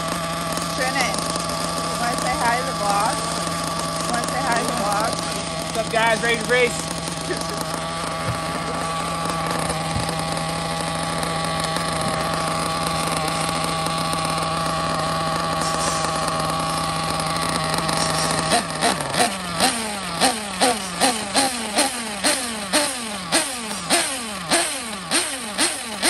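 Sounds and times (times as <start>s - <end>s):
engine revs: 0.0s - 26.0s
nitro engine idling buzzing: 0.0s - 26.0s.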